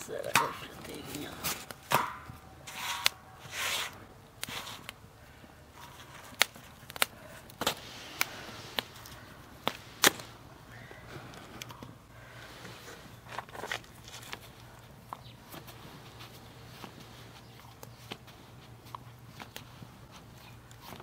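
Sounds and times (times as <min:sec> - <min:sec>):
flatbread scraping on griddle: 0:02.6 - 0:04.9
sharp clicks and pops: 0:06.3 - 0:10.3.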